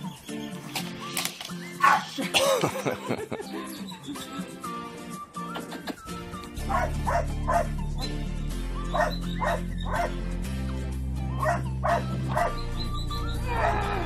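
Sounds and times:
background music with chords: 0.0 - 14.0
puppy yapping barks: 1.8 - 2.1, 6.7 - 7.7, 8.9 - 10.2, 11.4 - 12.6.

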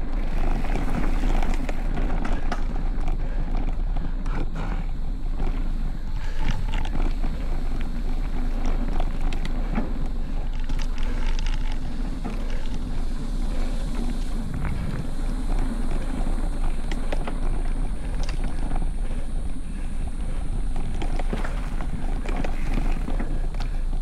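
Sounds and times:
bike clicks and rattles: 0.0 - 24.0
bike tyres rumbling on dirt: 0.0 - 24.0
wind on microphone: 0.0 - 24.0.

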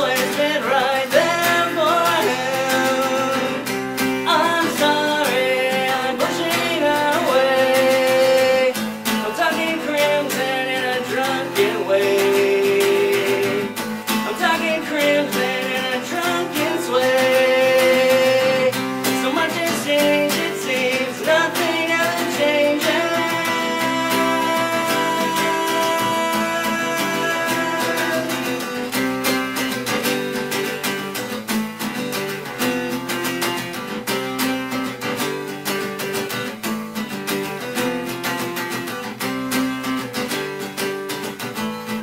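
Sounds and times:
man singing: 0.0 - 30.0
acoustic guitar strummed: 0.0 - 42.0.

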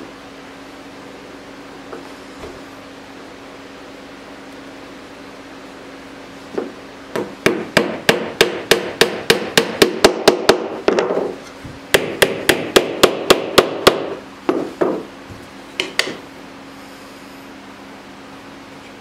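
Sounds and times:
hammer tapping on wood: 6.6 - 11.2, 11.9 - 15.1, 15.8 - 16.2.

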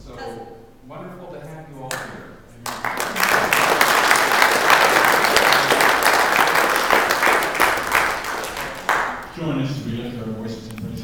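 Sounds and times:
people clapping: 1.9 - 9.6.

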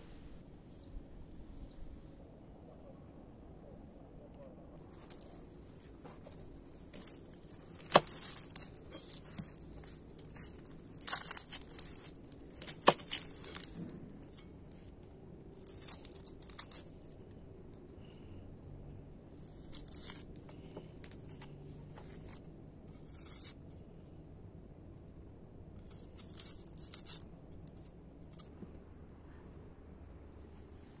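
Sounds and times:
onion skin crackling and tearing: 4.8 - 17.4, 19.3 - 23.6, 25.8 - 28.5.

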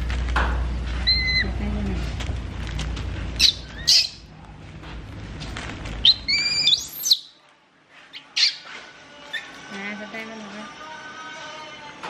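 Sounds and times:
baby monkey squealing: 1.0 - 1.6, 3.4 - 4.3, 6.0 - 7.3, 8.1 - 9.6.

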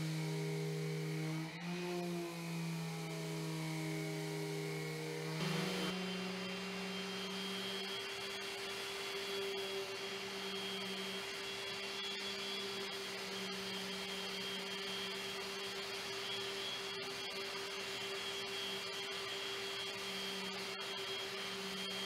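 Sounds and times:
orbital sander sanding wood: 0.0 - 22.0
dust extraction hose drawing air: 5.3 - 17.1.

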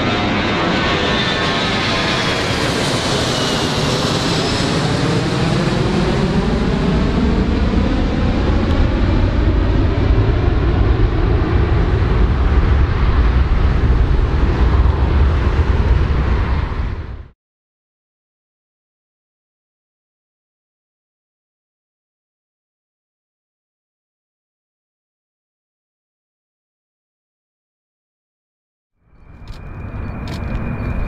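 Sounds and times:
jet airliner climbing: 0.0 - 17.3, 29.2 - 31.0.

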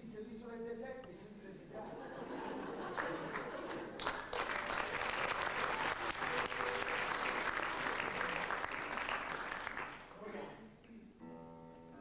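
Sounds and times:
audience applauding: 2.8 - 10.2.

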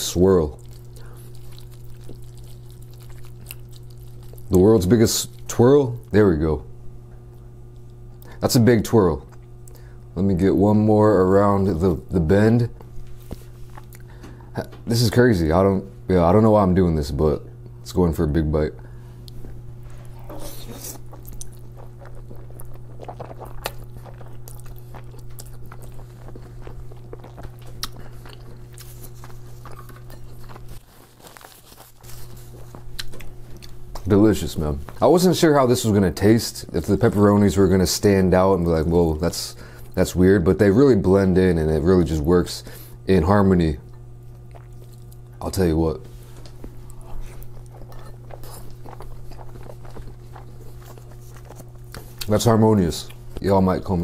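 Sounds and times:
wet chewing mouth clicks: 0.0 - 4.6, 20.2 - 34.1, 43.9 - 45.4, 46.4 - 52.4
steady low hum: 0.0 - 54.0.

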